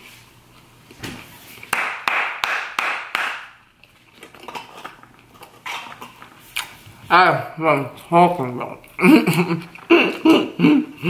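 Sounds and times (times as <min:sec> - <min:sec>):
close chewing and crunching: 0:03.7 - 0:07.0, 0:07.9 - 0:11.0.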